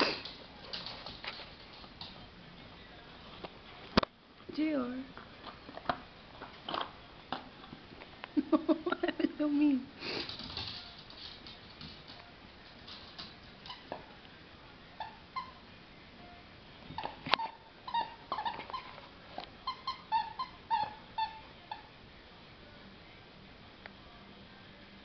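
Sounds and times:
squeaky toy squeaks: 17.0s - 19.0s, 19.6s - 21.9s.

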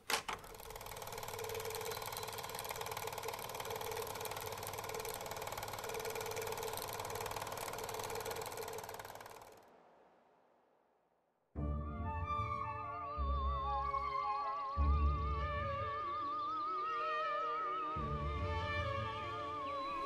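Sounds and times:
film projector clattering: 0.0s - 9.8s.

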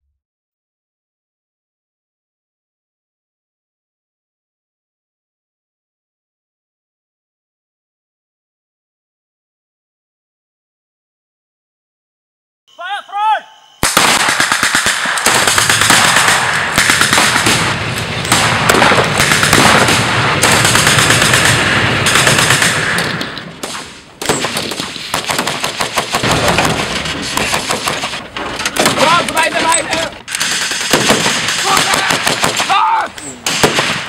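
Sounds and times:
whistle-like tones: 12.7s - 13.9s
automatic gunfire: 13.8s - 28.2s, 30.3s - 32.8s, 33.4s - 34.0s.

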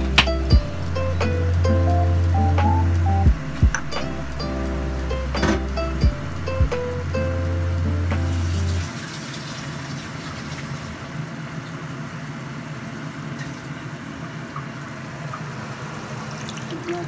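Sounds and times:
low steady hum: 0.0s - 9.0s
bubbling sizzle in wok: 7.3s - 17.0s.

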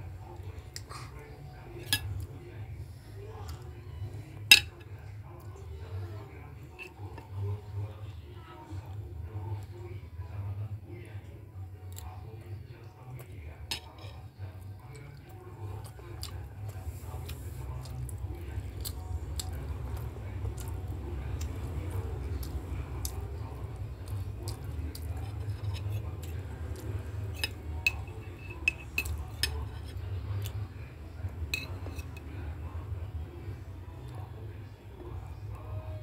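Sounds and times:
steady low hum: 0.0s - 36.0s
child chewing: 14.7s - 32.4s
metal spoon clinking on plate: 27.3s - 29.8s, 31.5s - 32.3s.

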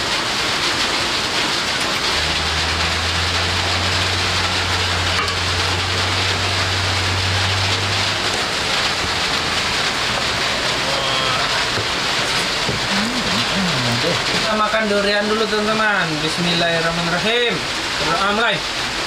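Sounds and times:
heavy rain: 0.0s - 19.0s
low hum: 1.8s - 14.5s.

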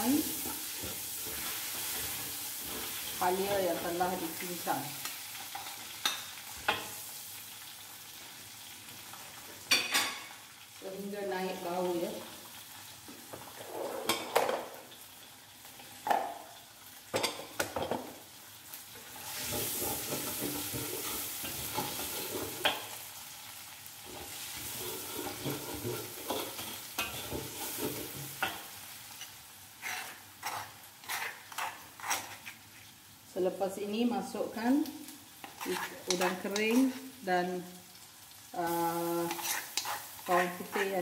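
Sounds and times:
ginger sizzling in butter: 0.0s - 41.0s
metal spatula scraping wok: 19.1s - 22.8s, 24.0s - 32.8s, 35.4s - 37.1s, 39.1s - 41.0s.

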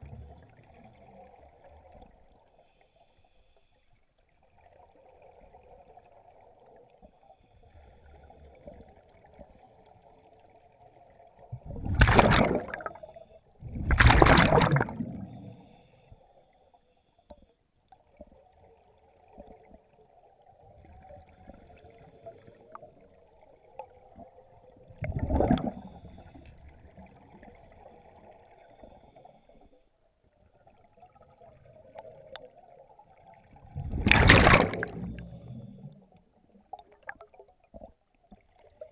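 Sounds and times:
diver's breath bubbles underwater: 11.6s - 15.8s, 24.9s - 26.4s, 33.6s - 36.1s.

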